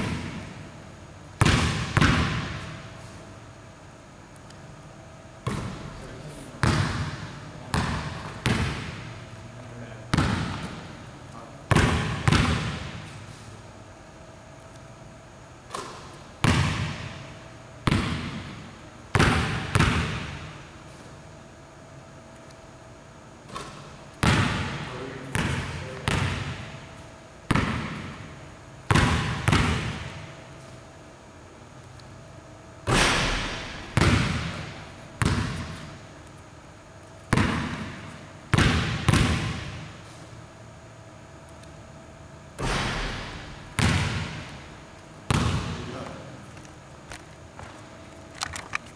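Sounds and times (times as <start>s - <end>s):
basketball bouncing on hardwood floor: 1.4s - 2.8s, 5.4s - 5.9s, 6.6s - 9.1s, 10.1s - 10.9s, 11.7s - 13.0s, 15.7s - 18.6s, 19.2s - 20.5s, 23.5s - 26.8s, 27.5s - 28.2s, 28.9s - 30.3s, 32.9s - 36.0s, 37.3s - 39.9s, 42.6s - 44.6s, 45.3s - 45.9s.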